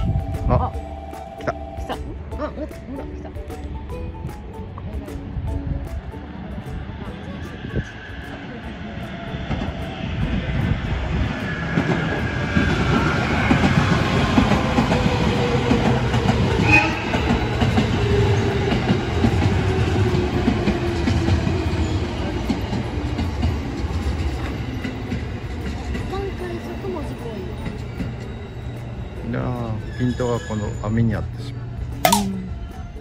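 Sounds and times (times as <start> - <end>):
train wheels rumbling over rails: 3.6 - 29.2.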